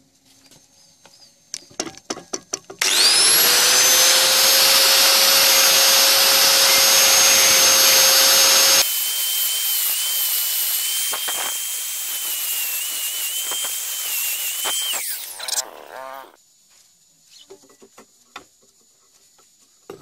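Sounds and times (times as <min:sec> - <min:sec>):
angle grinder whine: 0:02.8 - 0:16.4.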